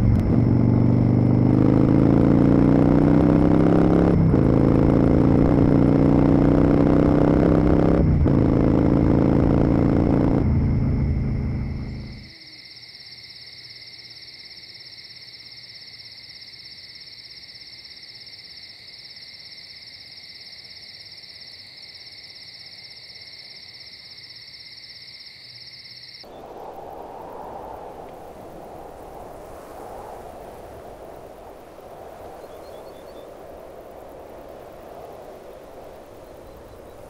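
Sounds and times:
insects trilling: 10.6 - 37.0
soft rushing noise: 26.2 - 37.0.

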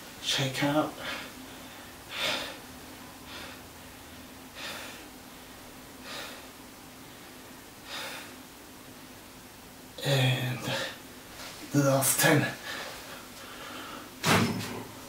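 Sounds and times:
faint steady hum: 0.0 - 15.0
man breathing heavily: 1.0 - 5.2, 6.0 - 8.5, 12.6 - 14.2.

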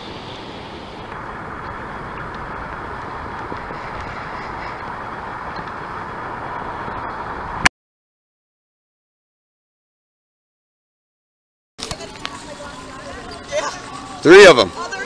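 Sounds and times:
wind and water rushing: 0.0 - 7.7.

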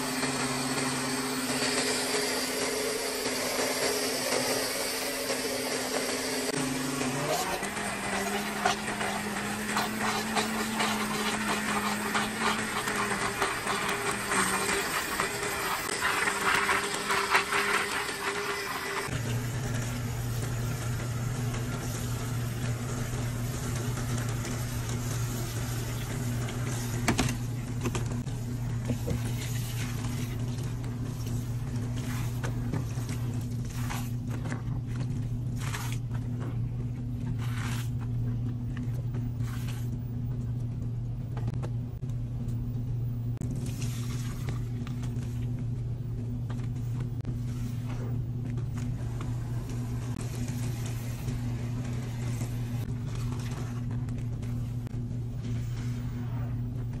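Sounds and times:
blender whirring: 0.0 - 30.7
washing machine humming: 0.0 - 57.0.

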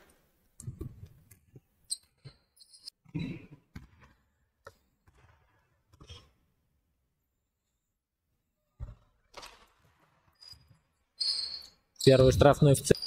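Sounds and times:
sneakers squeaking on gym floor: 1.9 - 2.9, 10.3 - 13.0.

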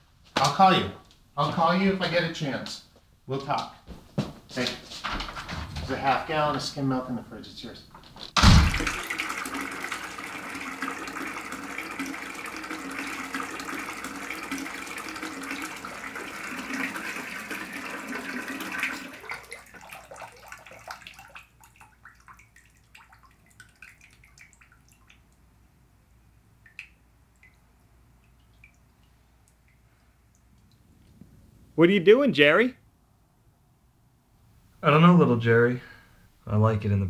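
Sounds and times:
loud thump: 8.3 - 9.0
bathtub spout running water: 8.4 - 25.4
water dripping from spout: 8.7 - 25.7, 26.5 - 31.1.

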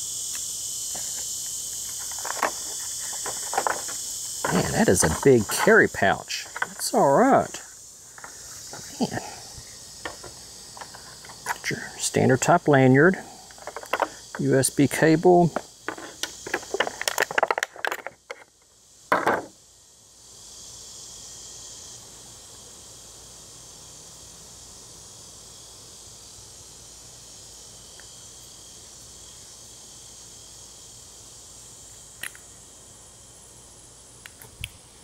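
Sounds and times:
high-pitched insect chorus: 0.0 - 35.0
plastic packaging rustling and clicking: 15.9 - 18.4.

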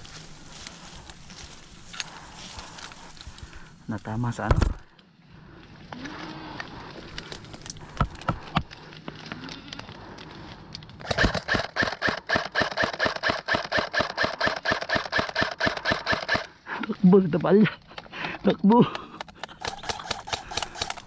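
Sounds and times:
airsoft rifle firing: 11.0 - 16.5.

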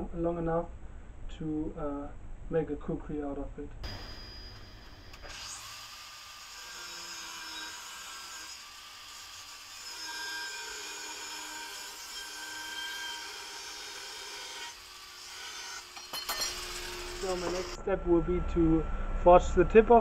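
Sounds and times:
angle grinder cutting steel: 3.9 - 17.8.

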